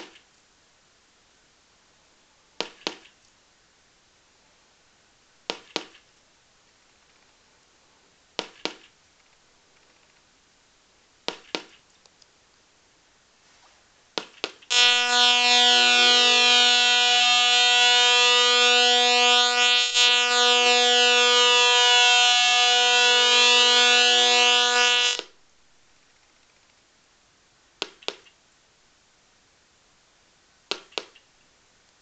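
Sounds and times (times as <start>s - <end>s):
buzzy siren-like warbling tone: 14.7s - 25.3s.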